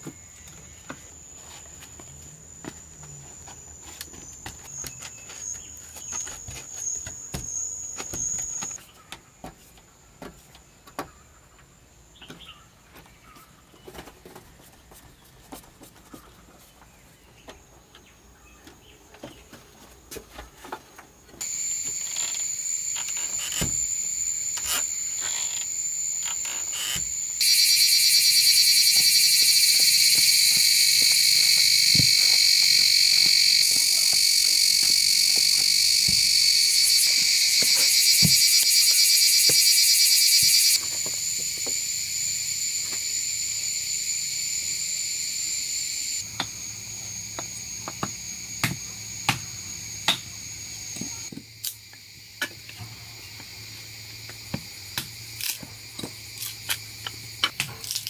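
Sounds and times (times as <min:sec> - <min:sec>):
insects calling: 0:00.0 - 0:09.1, 0:21.3 - 0:58.0.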